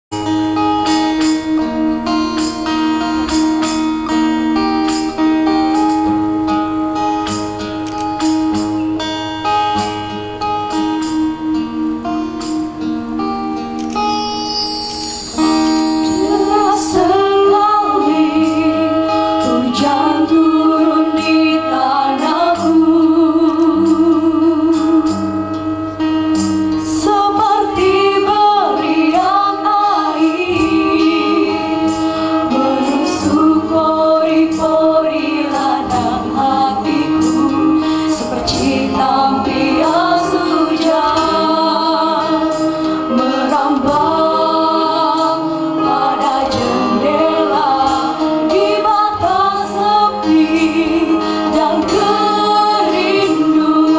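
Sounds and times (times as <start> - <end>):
group singing through microphones: 15.6 - 53.9.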